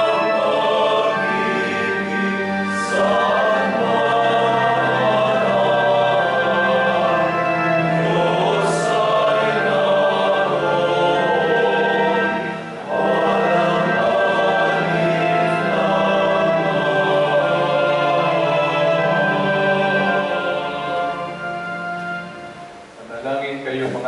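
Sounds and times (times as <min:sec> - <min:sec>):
choir singing a hymn: 0:00.0 - 0:22.9.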